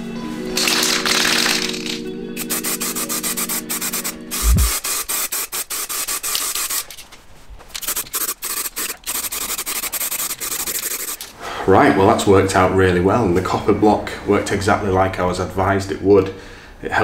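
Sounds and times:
aerosol can spraying: 0:00.6 - 0:06.9, 0:07.8 - 0:11.3.

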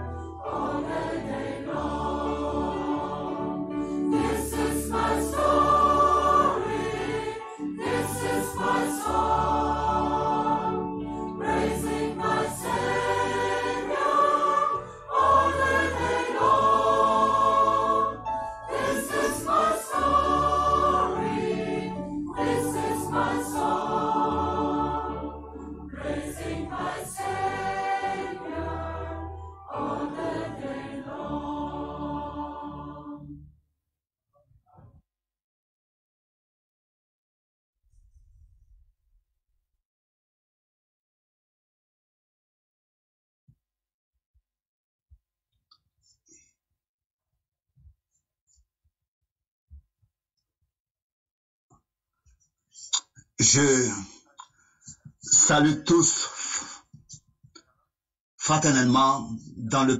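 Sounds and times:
choir singing a hymn: 0:00.0 - 0:33.4.

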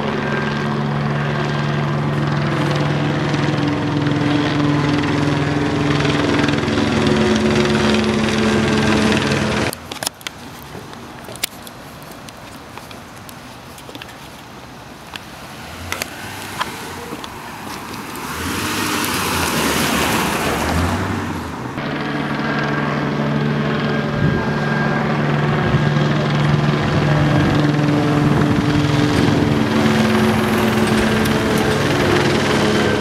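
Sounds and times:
helicopter rotor drone: 0:00.0 - 0:10.2, 0:15.5 - 0:33.0
car passing: 0:14.9 - 0:33.0.

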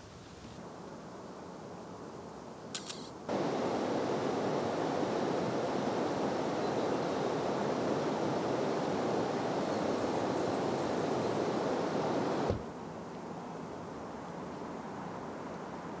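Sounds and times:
camera shutter clicks: 0:02.7 - 0:03.1
rushing water: 0:03.3 - 0:12.6.

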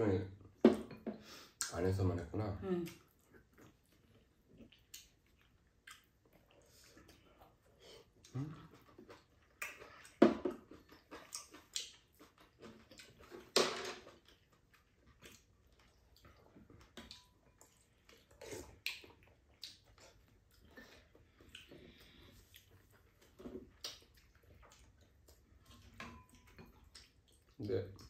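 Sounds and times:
chewing: 0:02.8 - 0:28.0
slurping: 0:17.6 - 0:26.0.

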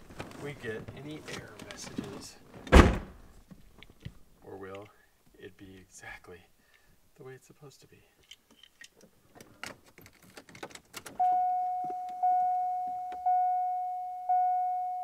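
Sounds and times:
car warning chime: 0:11.2 - 0:15.0.

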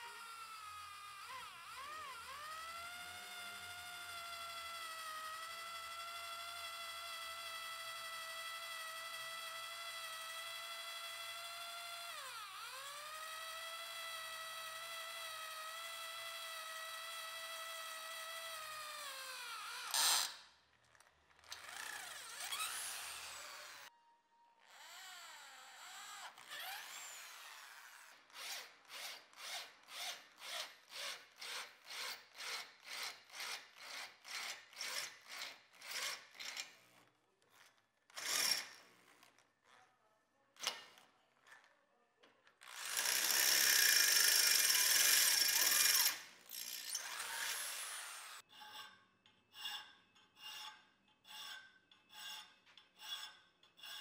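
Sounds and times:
electric drill cutting metal: 0:00.0 - 0:20.4, 0:21.4 - 0:23.9, 0:24.6 - 0:36.7, 0:38.2 - 0:38.8, 0:42.6 - 0:48.4.

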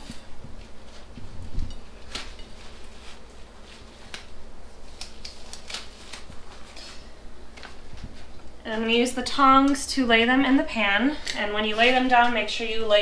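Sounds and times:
rubber gloves snapping: 0:04.0 - 0:06.4.

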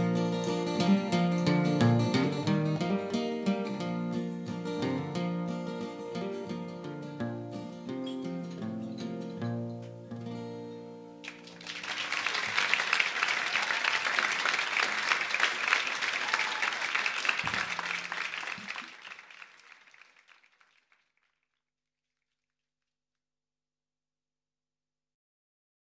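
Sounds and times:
audience applauding: 0:11.2 - 0:21.4.

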